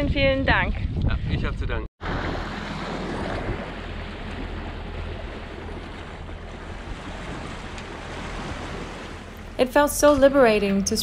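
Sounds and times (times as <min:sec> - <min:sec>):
wind blowing across microphone: 0:00.0 - 0:04.4
water rushing along boat hull: 0:02.0 - 0:11.0.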